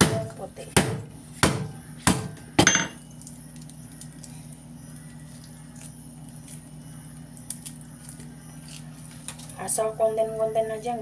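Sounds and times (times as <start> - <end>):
steady low hum: 0.0 - 11.0
garlic being peeled by hand: 3.5 - 9.7.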